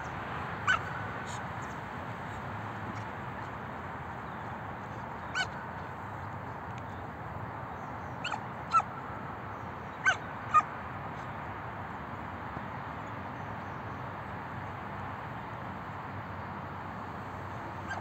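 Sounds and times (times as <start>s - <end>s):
puppy barking high-pitched: 0.6s - 1.0s, 8.2s - 8.9s, 10.0s - 10.7s.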